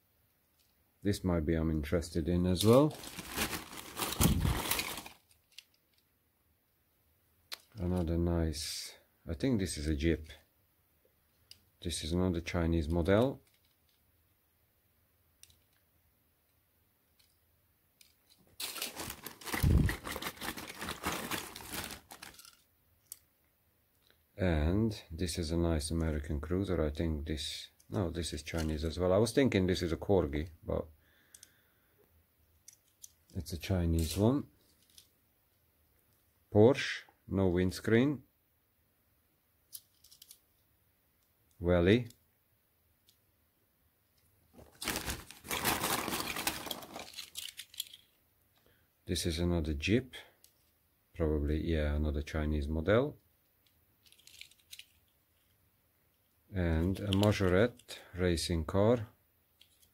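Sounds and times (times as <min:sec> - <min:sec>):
plastic bag rustling: 0:02.6 - 0:05.4, 0:18.5 - 0:22.6, 0:44.6 - 0:48.0.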